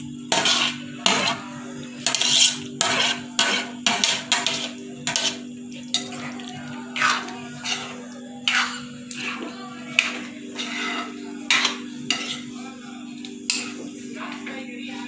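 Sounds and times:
spoon scraping ceramic plate: 0.3 - 1.4, 2.0 - 6.2, 7.0 - 12.6.

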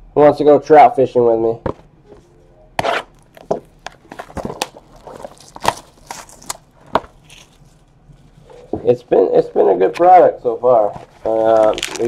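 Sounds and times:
cardboard boxes knocking and scraping: 2.8 - 5.9.

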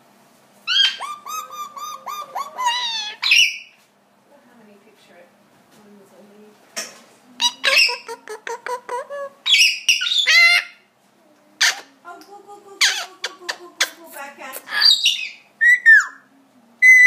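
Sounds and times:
parrot squawking: 0.6 - 3.7, 7.4 - 10.9, 11.6 - 11.9, 12.8 - 14.0, 14.7 - 16.2
parrot warbling chatter: 0.7 - 3.7, 7.4 - 10.9, 11.6 - 12.0, 12.8 - 14.0, 14.7 - 16.0.

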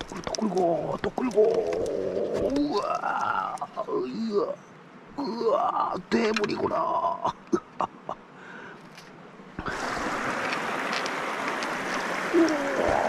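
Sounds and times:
faint clicks: 0.0 - 3.9
river water rushing: 8.3 - 13.0.

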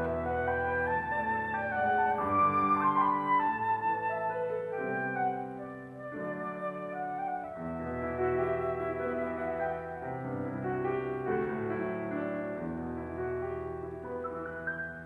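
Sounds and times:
flute playing slow melody: 0.0 - 10.9
piano accompaniment: 0.0 - 15.0.

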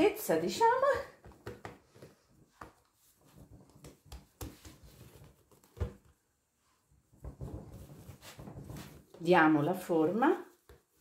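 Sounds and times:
hands patting dough: 1.2 - 6.2, 10.4 - 11.0.

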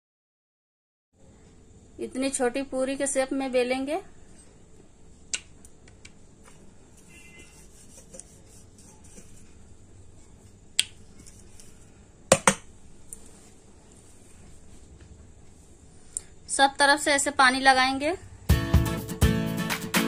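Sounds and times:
rolling pin knocking on metal board: 12.3 - 12.7.

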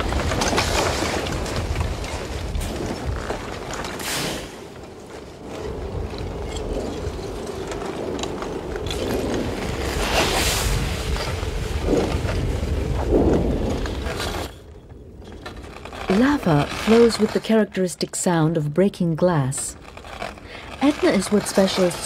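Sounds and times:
lava crust blocks cracking: 0.0 - 17.5, 19.6 - 22.0
steady low rumble: 4.7 - 16.8.

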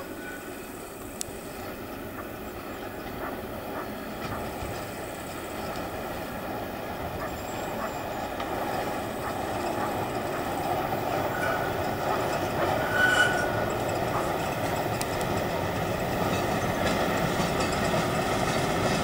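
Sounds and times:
diesel train passing: 0.0 - 19.0
high squeal: 10.9 - 14.4.

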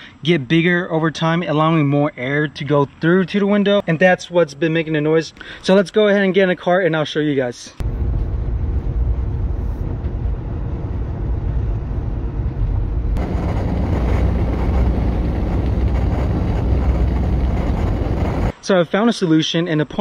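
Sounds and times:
wind and road noise in car cabin: 7.8 - 18.6.

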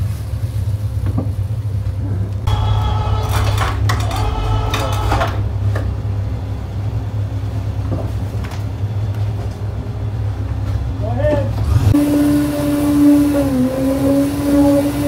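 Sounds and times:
pump engine droning: 2.5 - 7.8, 11.5 - 15.0.

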